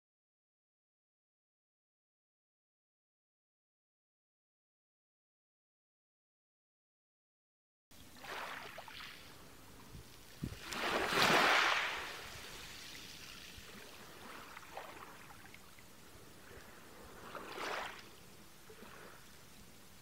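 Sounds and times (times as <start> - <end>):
water hiss: 10.3 - 15.4
waves washing onto rocks: 10.4 - 15.3.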